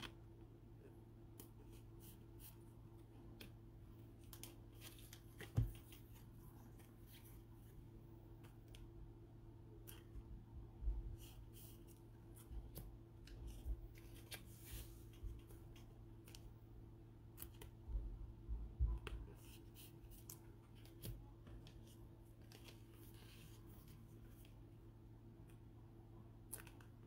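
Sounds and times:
trading cards rustling in sleeves: 0.0 - 9.0, 11.1 - 16.6, 19.0 - 24.8
steady low hum: 0.0 - 27.0.

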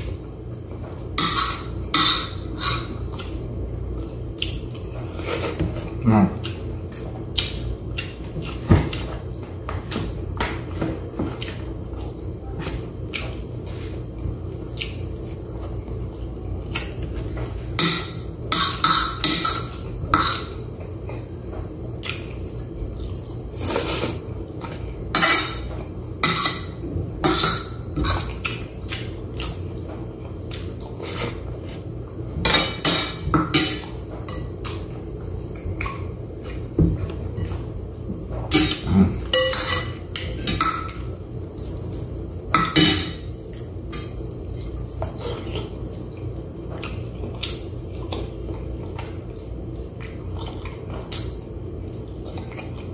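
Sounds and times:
steady low hum: 0.0 - 52.9
metal spoon clinking on a plate: 39.4 - 40.0.

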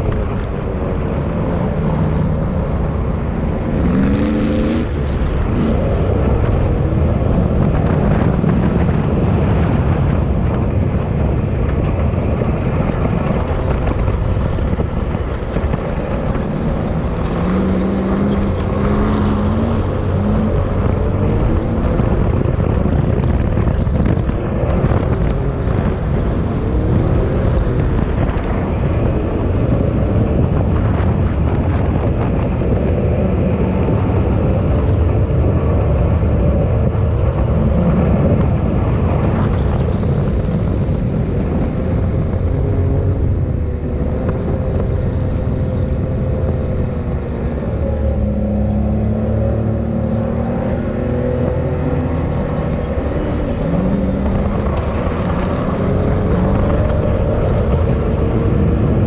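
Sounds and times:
wind noise on microphone: 0.0 - 59.0
off-road vehicle engine revving: 1.7 - 10.1, 12.3 - 31.2, 41.5 - 59.0.

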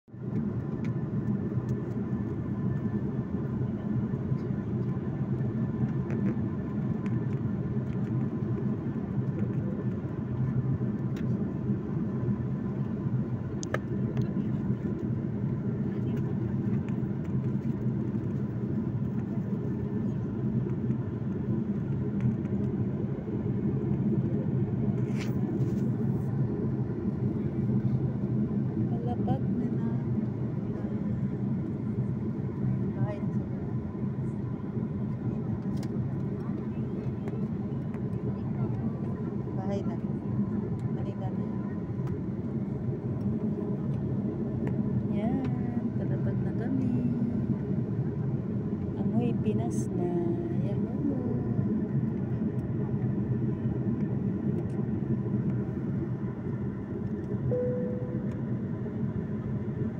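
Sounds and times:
jet airliner cabin roar: 0.2 - 59.9
faint steady tones: 57.4 - 59.5.

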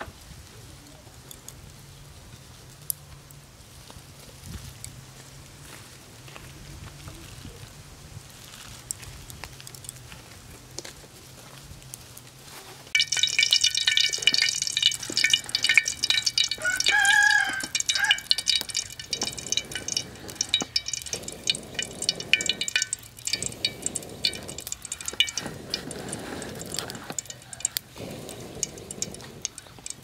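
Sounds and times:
wok sizzling and crackling: 12.8 - 30.0
person blowing on fire: 25.4 - 29.5.

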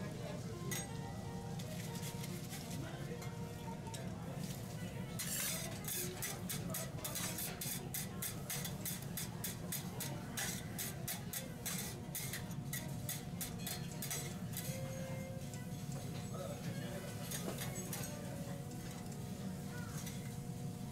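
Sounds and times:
spatulas scraping steel griddle: 5.1 - 15.1.

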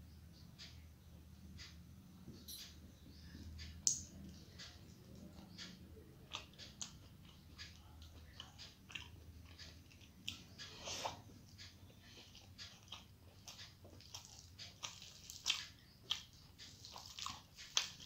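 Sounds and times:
person chewing: 4.6 - 18.0.

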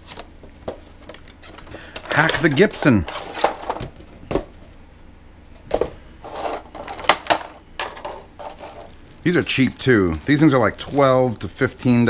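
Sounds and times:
plastic bag crinkling: 7.8 - 12.0.

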